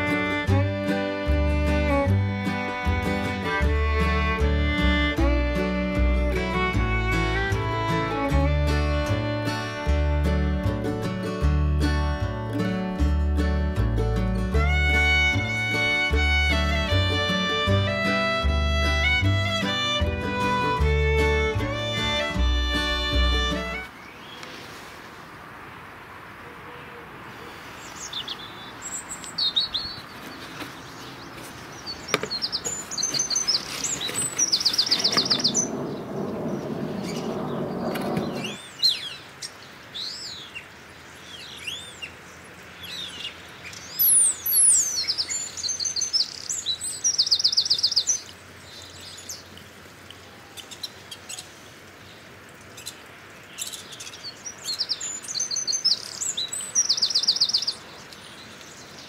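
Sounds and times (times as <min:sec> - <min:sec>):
songbirds chirping and singing: 0:27.7 - 0:49.6, 0:52.1 - 0:59.0
bird trill: 0:31.9 - 0:40.6, 0:42.9 - 0:48.3, 0:53.6 - 0:57.8
rushing noise: 0:34.6 - 0:38.8.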